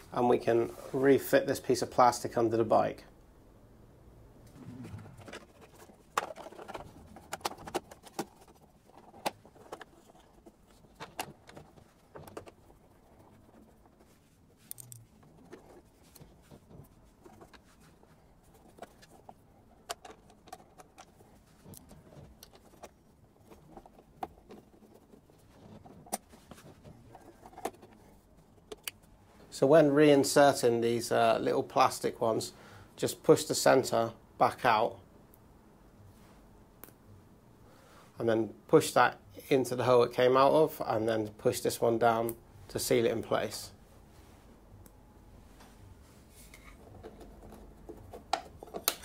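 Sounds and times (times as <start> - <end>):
plastic cover clicks and rattles: 5.2 - 10.3.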